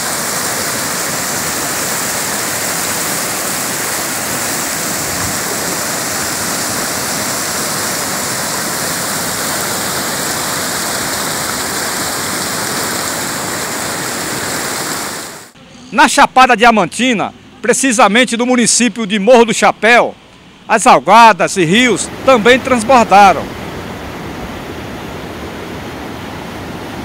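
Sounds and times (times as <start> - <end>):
river water rushing over rapids: 0.0 - 15.6, 21.6 - 27.0.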